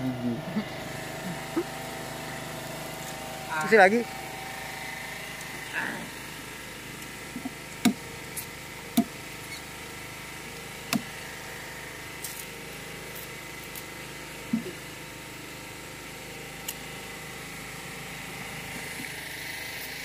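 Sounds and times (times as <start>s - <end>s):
knife chopping sugarcane: 7.4s - 9.2s, 10.9s - 11.2s.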